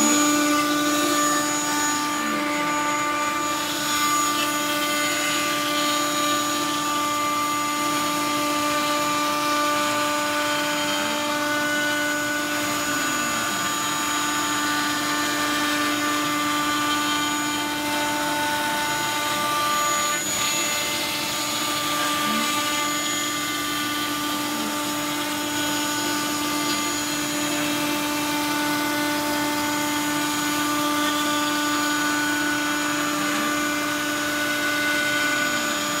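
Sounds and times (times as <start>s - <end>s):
router spindle cutting wood: 0.0s - 36.0s.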